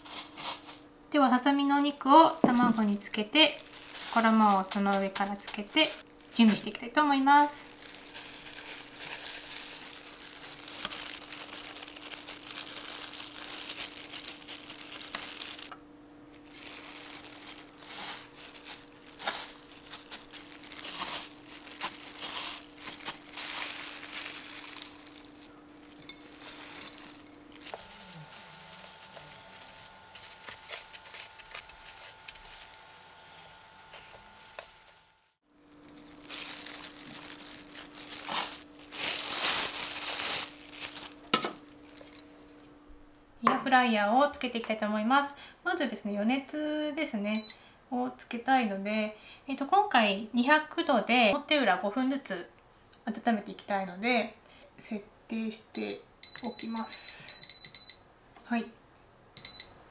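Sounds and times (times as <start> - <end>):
breadcrumbs rustling and crunching: 0.0 - 0.9, 2.4 - 15.7, 16.3 - 42.4
plastic gloves crinkling: 0.0 - 42.6
faint steady hum: 0.0 - 59.9.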